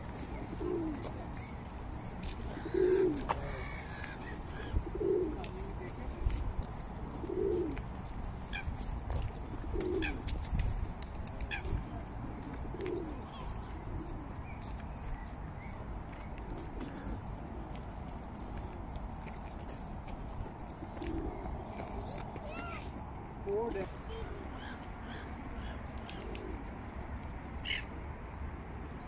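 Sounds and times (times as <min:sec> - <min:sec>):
pigeons cooing: 0:00.1 - 0:05.8, 0:06.9 - 0:08.7, 0:09.4 - 0:10.4, 0:11.4 - 0:17.8, 0:20.1 - 0:22.9, 0:23.7 - 0:26.8.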